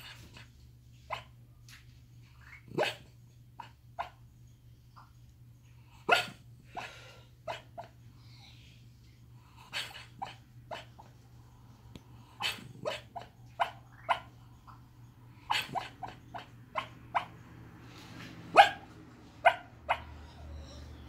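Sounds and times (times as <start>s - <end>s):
dog yipping and barking in sleep: 1.1s - 1.3s, 2.4s - 4.2s, 6.1s - 6.9s, 7.5s - 7.9s, 9.7s - 11.1s, 12.4s - 14.4s, 15.5s - 17.4s, 18.5s - 21.0s.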